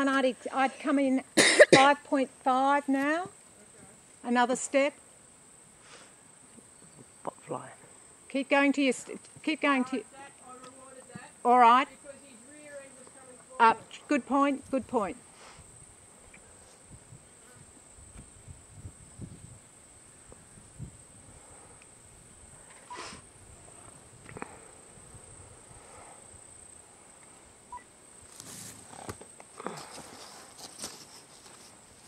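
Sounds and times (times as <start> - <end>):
insect chirring: 0.0 - 32.0
wind rumble on microphone: 16.8 - 26.5
soft rustles: 28.2 - 32.0.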